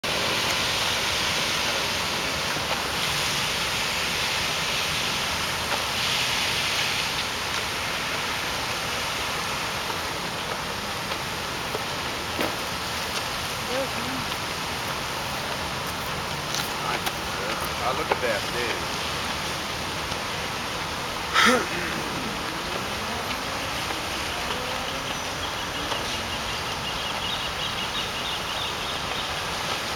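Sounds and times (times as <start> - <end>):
fountain jets splashing onto water: 0.0 - 29.9.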